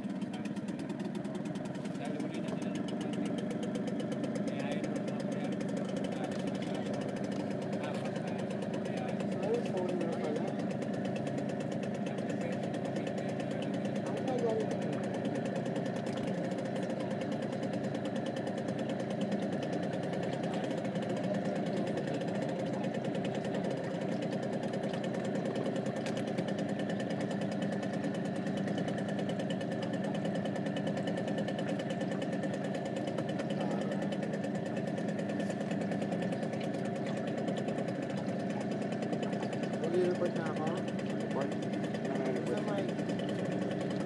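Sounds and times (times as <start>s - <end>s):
boat engine droning: 0.0s - 44.0s.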